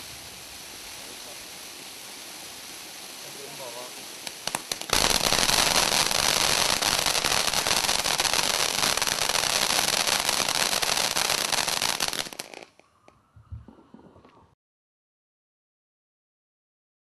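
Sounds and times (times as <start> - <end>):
firework spraying sparks: 0.0 - 12.9.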